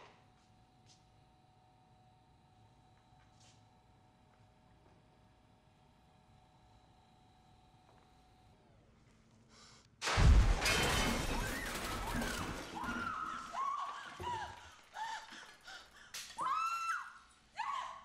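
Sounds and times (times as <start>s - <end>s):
pots and pans crashing onto floor: 10.0s - 14.4s
woman crying out in fright: 12.6s - 18.0s.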